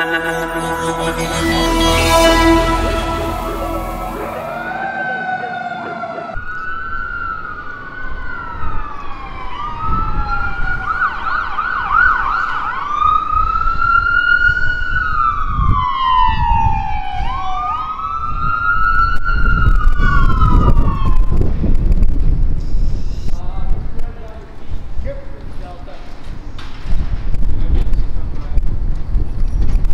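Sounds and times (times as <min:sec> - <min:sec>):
ambulance siren wailing and yelping: 0:04.4 - 0:13.1.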